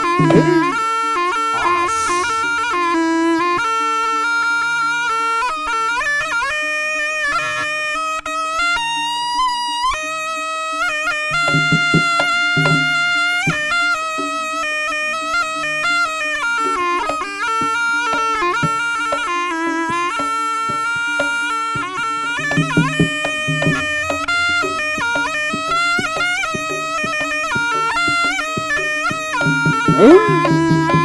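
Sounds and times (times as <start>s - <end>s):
drum strokes: 0.0s - 0.8s, 1.4s - 3.8s, 11.3s - 14.5s, 16.6s - 31.0s
steady held low note: 0.0s - 0.8s
reedy shawm melody: 0.0s - 31.0s.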